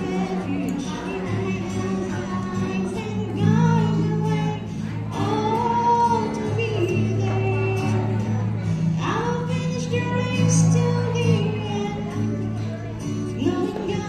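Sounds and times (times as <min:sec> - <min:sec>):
acoustic guitar: 0:00.0 - 0:14.0
woman singing: 0:00.0 - 0:14.0.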